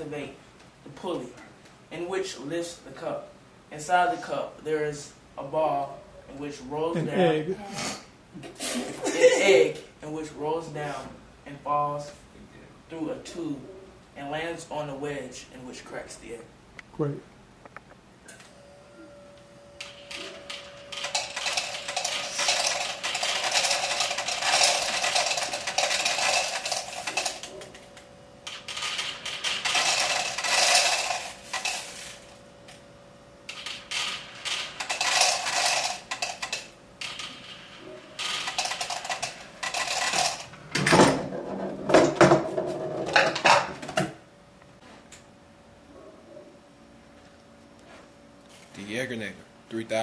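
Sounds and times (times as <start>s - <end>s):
metal balls rattling through tubing: 20.2s - 32.4s, 33.5s - 40.5s.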